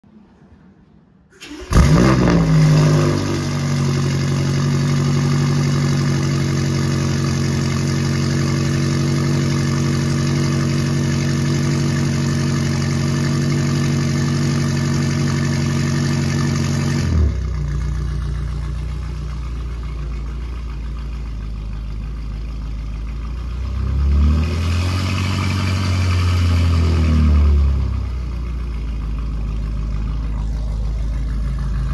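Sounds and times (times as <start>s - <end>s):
car engine starting and idling: 0.8s - 31.9s.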